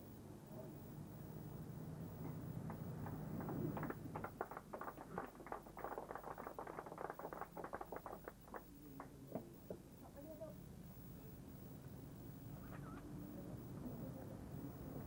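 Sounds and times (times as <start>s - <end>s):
low steady hum: 0.0s - 15.0s
small crowd clapping: 2.6s - 10.2s.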